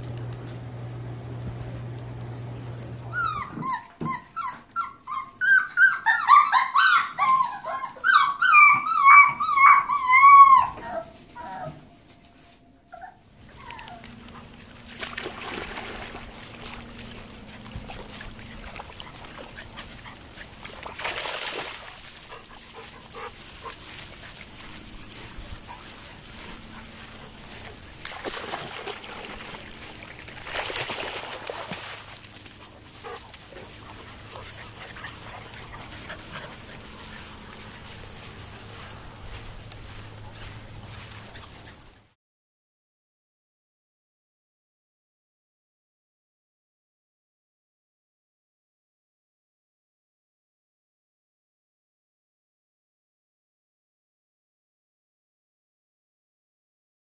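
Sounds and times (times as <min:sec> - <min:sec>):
puppies whimpering: 0:03.0 - 0:14.6, 0:33.0 - 0:42.0.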